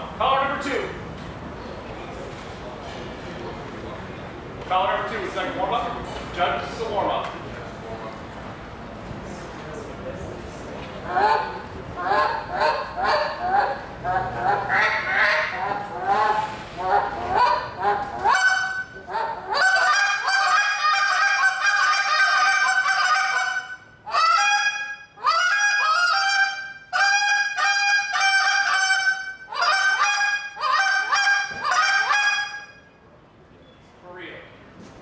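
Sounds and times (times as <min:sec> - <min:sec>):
goose call honks: 0:11.1 - 0:32.8.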